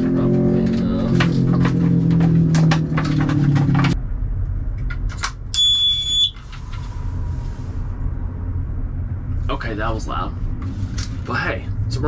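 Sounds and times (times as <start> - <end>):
high-pitched alarm beep: 5.6 - 6.4.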